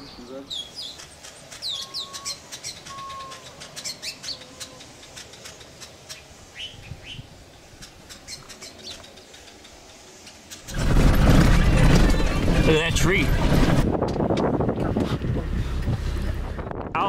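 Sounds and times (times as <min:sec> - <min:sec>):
birds chattering: 0:00.0 - 0:10.8
bird whistled glides: 0:01.6 - 0:05.6.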